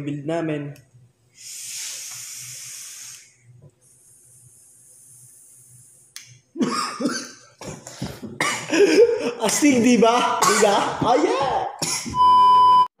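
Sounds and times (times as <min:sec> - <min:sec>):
breathy vape hiss: 0:01.3 - 0:06.4.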